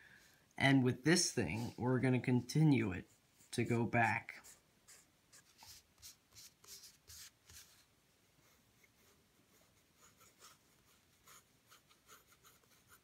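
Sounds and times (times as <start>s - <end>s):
pencil scratching on paper: 3.0s - 13.0s.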